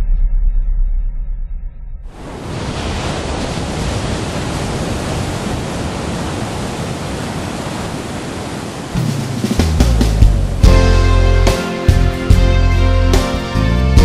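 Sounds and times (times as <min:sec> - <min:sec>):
ocean waves breaking: 0:02.1 - 0:11.9.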